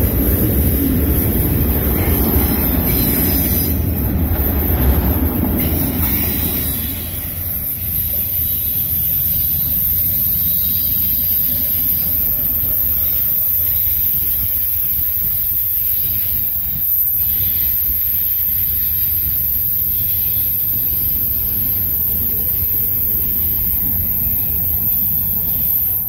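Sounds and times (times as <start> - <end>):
train car rushing past: 0.0 - 15.2
train low rumble: 0.0 - 26.0.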